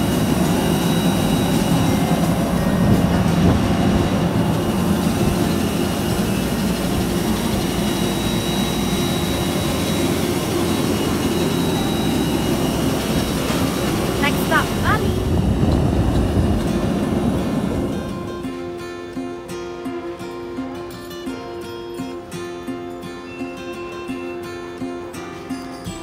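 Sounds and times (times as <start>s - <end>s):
wind buffeting microphone: 0.0s - 18.5s
jet aircraft roar with high whine: 0.0s - 26.0s.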